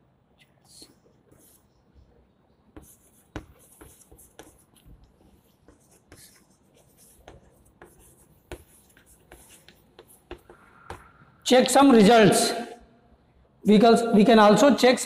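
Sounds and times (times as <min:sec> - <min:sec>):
chalk scratching on blackboard: 0:01.3 - 0:01.7, 0:02.8 - 0:11.0
chalk tapping on board: 0:02.8 - 0:11.1.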